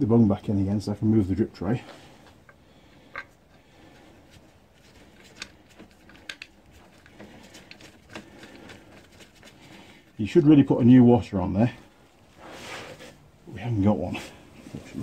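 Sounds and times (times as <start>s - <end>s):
small metallic clicks and taps: 2.2s - 3.6s, 5.1s - 9.1s.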